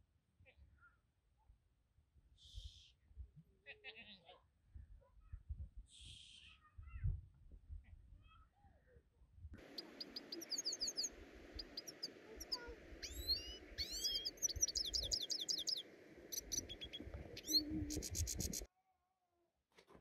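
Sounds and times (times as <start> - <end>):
background hiss: 9.6 - 18.7
small birds chirping: 9.6 - 18.7.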